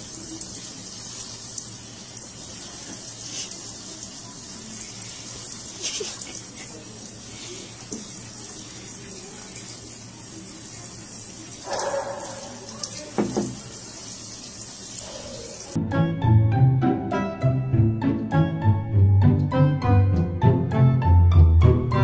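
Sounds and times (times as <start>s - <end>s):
faucet spray hissing: 0.0s - 15.8s.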